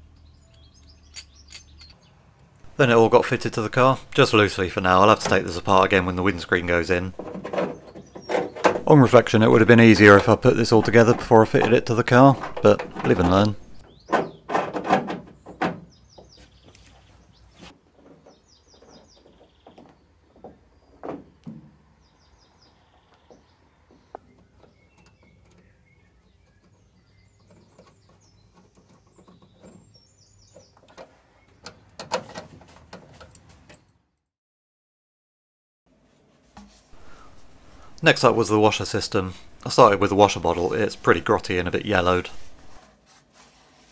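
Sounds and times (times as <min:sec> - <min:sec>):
faint birds chirping: 0:00.0 - 0:34.3, 0:37.0 - 0:42.8
small metal parts clicking and rattling: 0:00.5 - 0:02.0.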